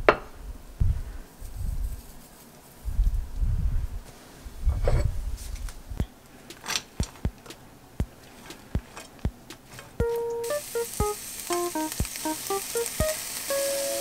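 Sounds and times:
sprouts tapping into frying pan: 0:06.0 - 0:14.0.

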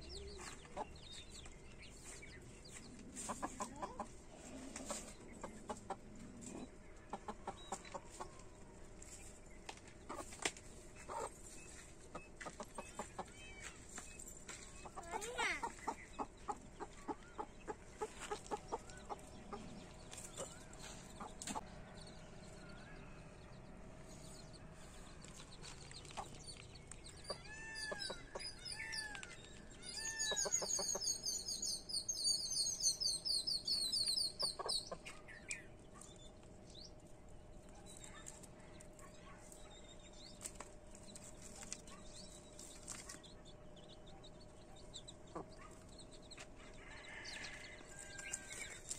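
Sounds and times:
hen clucking: 0:00.0 - 0:08.6, 0:09.8 - 0:13.6, 0:14.8 - 0:21.8, 0:24.4 - 0:35.6, 0:44.6 - 0:48.9
chicks peeping: 0:00.0 - 0:48.9.

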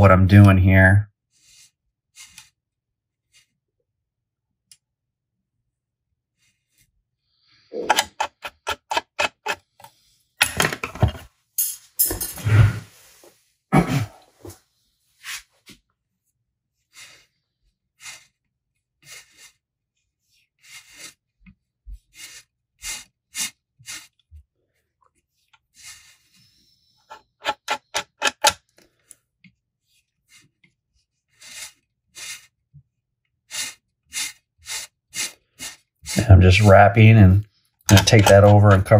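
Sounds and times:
rubbing and scraping: 0:01.3 - 0:03.6, 0:07.6 - 0:13.5, 0:14.3 - 0:15.8, 0:16.7 - 0:29.0, 0:29.8 - 0:38.9.

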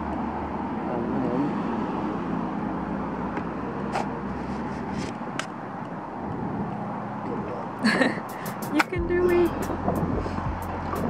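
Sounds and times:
city traffic hum: 0:00.0 - 0:11.0.

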